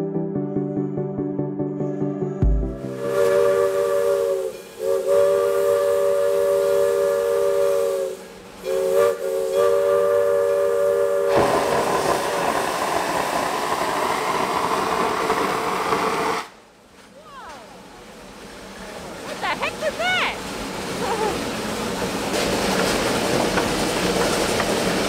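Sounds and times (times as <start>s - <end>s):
steam locomotive whistle blasts: 2.9s - 12.5s
steam venting hiss: 2.9s - 16.6s.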